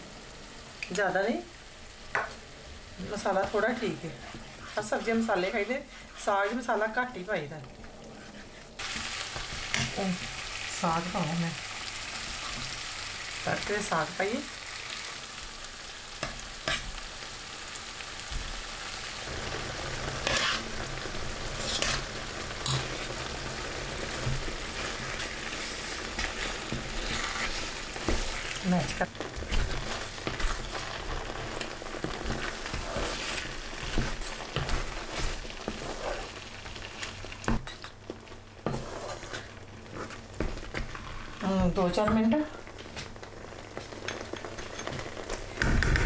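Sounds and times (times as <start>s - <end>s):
food sizzling in a frying pan: 0.0s - 46.0s
spatula scraping and knocking pan: 20.1s - 20.8s, 21.6s - 23.1s, 24.1s - 36.3s, 38.6s - 42.3s.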